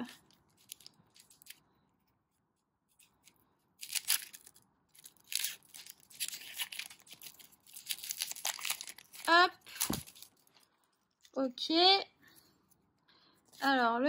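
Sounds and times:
foil wrapper tearing and crinkling: 0:00.5 - 0:01.6, 0:03.8 - 0:10.7.

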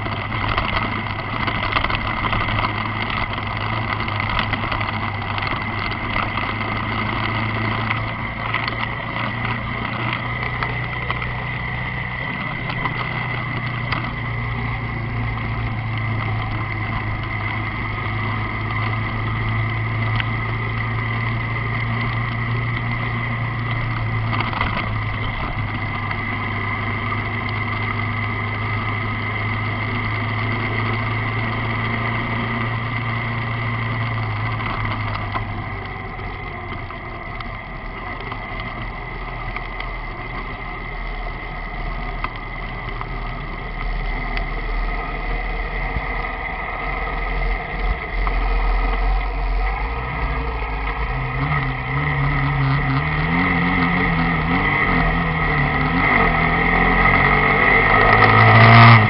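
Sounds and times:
motorcycle engine running: 0:00.0 - 0:59.0
road and wind noise: 0:00.0 - 0:59.0.

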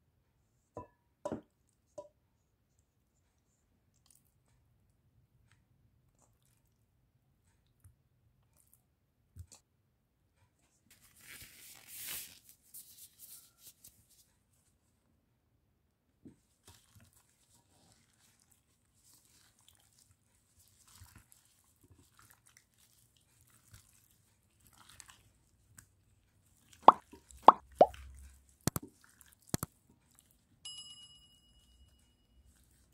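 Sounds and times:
plastic glove crinkling: 0:10.9 - 0:14.2
wet squelches of meat: 0:16.6 - 0:30.4.

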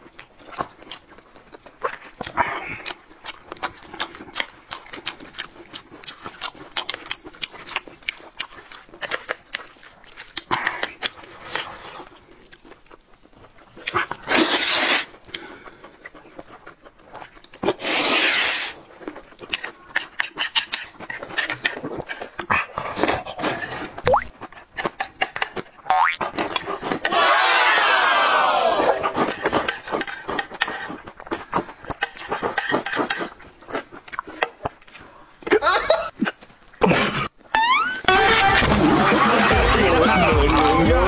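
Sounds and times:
wet chewing: 0:00.0 - 0:38.7
slurping noodles: 0:13.6 - 0:16.2, 0:17.1 - 0:25.5, 0:26.2 - 0:27.6, 0:28.2 - 0:34.6.

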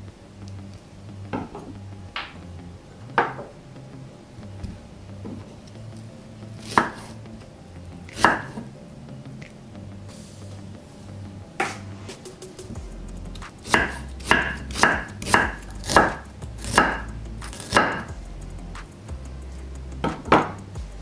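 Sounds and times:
knife chopping on wooden board: 0:06.6 - 0:07.1, 0:08.1 - 0:08.6, 0:13.6 - 0:18.1.

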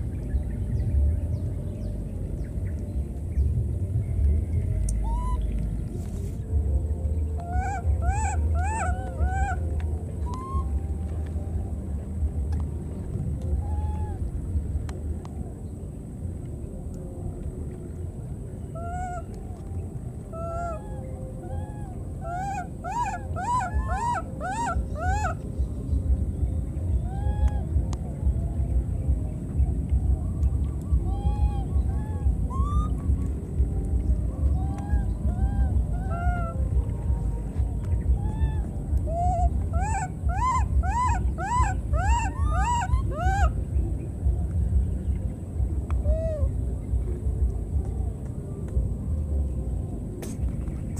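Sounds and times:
low steady rumble: 0:00.0 - 0:50.9
baby monkey cooing: 0:05.0 - 0:05.4, 0:10.3 - 0:10.7, 0:21.5 - 0:25.4, 0:31.1 - 0:32.9, 0:34.6 - 0:36.7, 0:38.2 - 0:43.5.

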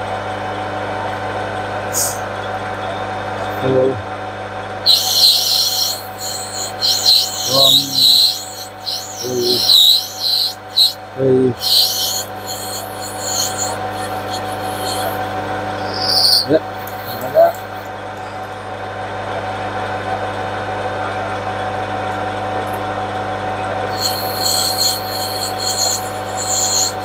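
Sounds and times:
metal lathe humming: 0:04.8 - 0:17.9, 0:23.9 - 0:27.0
warbling high chirps: 0:04.8 - 0:17.9, 0:23.9 - 0:27.0.

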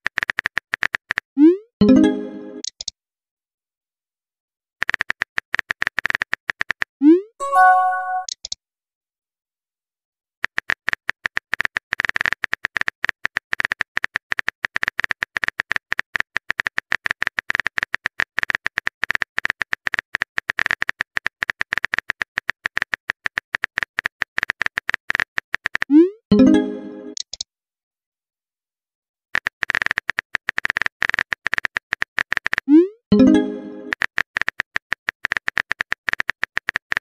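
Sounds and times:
message sent pop and chime: 0:01.8 - 0:02.6, 0:07.4 - 0:08.3, 0:26.3 - 0:27.2, 0:33.1 - 0:34.0
smartphone keyboard clicking: 0:29.4 - 0:32.7.

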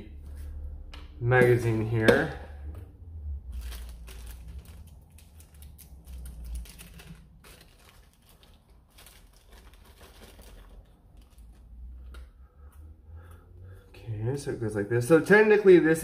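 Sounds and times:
plastic bag crinkling: 0:03.4 - 0:11.8.

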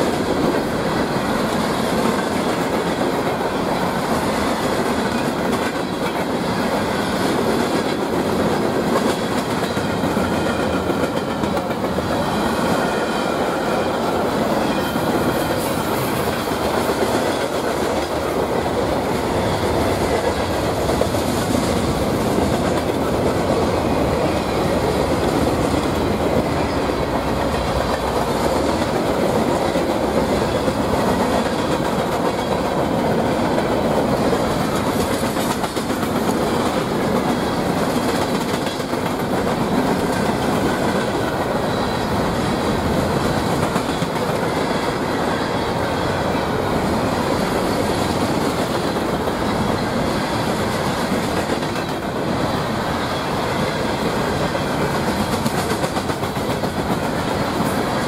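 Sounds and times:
train wheels on rails: 0:00.0 - 0:58.0.

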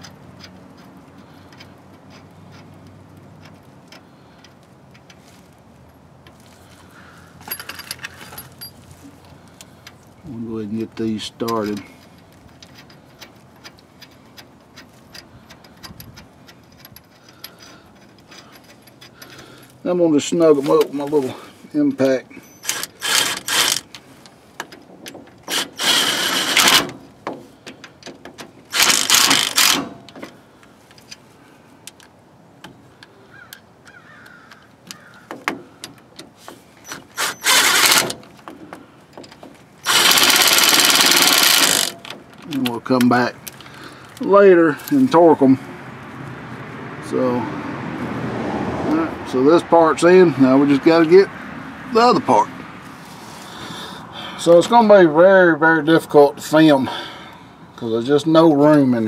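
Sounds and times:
small metallic clicks of bolts: 0:00.0 - 0:05.2, 0:11.4 - 0:19.8, 0:22.0 - 0:31.2, 0:31.8 - 0:45.0
impact driver hammering: 0:39.8 - 0:42.0.

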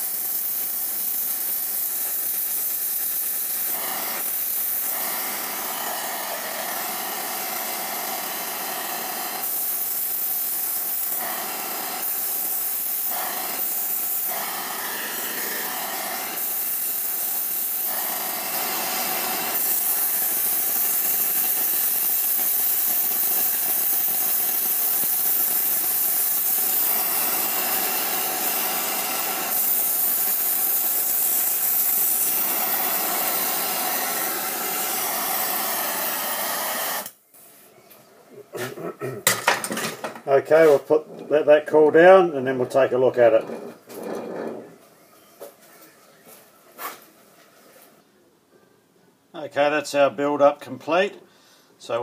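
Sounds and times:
spray torch hissing: 0:00.0 - 0:37.6, 0:40.2 - 0:41.5.

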